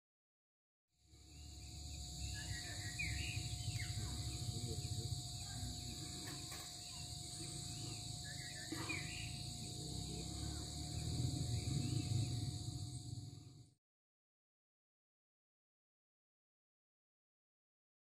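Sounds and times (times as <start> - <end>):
insects droning: 1.0 - 13.8
low outdoor rumble: 1.1 - 13.8
bird chirps: 1.2 - 13.2.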